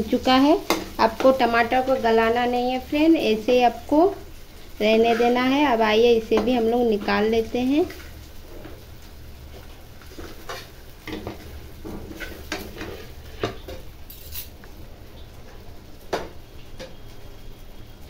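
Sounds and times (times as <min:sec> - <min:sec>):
spatula scraping a pan: 0:04.9 - 0:05.6, 0:09.5 - 0:14.6.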